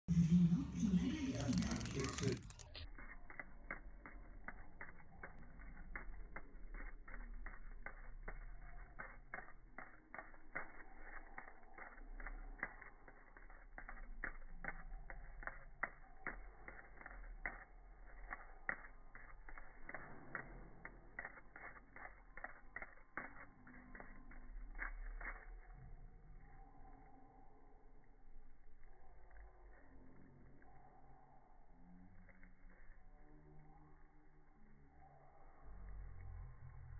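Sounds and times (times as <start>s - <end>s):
low hum: 0.0s - 36.9s.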